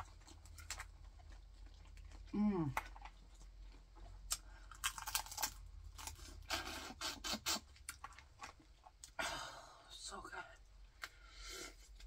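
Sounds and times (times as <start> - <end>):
crawfish shell cracking and peeling: 4.2 - 6.5.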